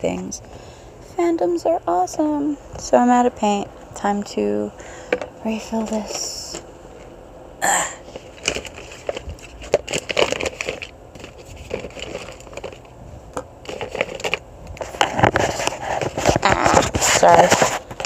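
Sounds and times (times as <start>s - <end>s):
plastic bottles clattering together: 8.3s - 12.8s.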